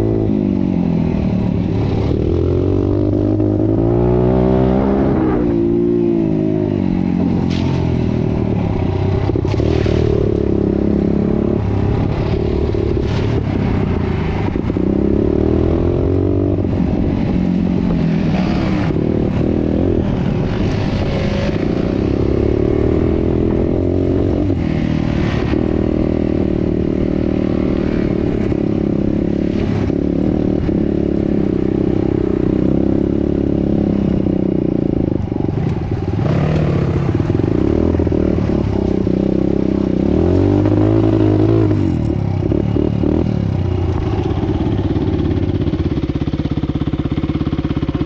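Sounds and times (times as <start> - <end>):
dirt bike engine revving: 1.9 - 33.9.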